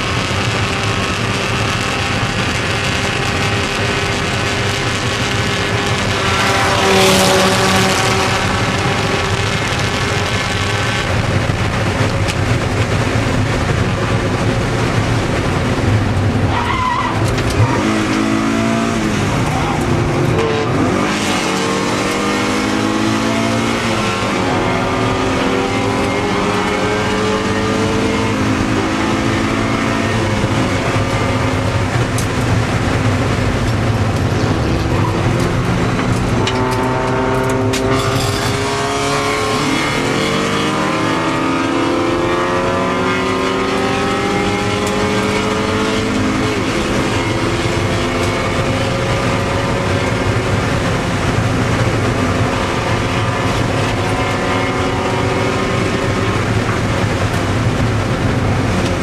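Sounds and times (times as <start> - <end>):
race car engine accelerating: 0.0 - 59.0
road and wind noise: 0.0 - 59.0.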